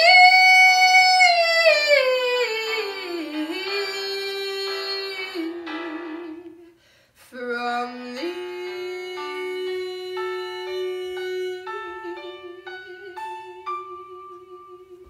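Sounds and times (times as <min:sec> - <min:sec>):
woman singing high held note: 0:00.0 - 0:15.0
keyboard sustained chords: 0:08.2 - 0:15.0.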